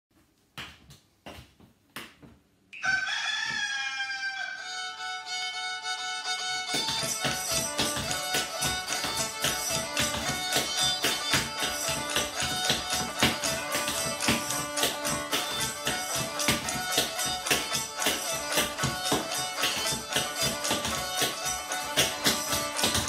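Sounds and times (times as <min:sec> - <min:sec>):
fiddle-like music: 0:03.6 - 0:23.0
quick tapping beat: 0:06.7 - 0:23.0
sharp knocks: 0:06.7 - 0:23.0.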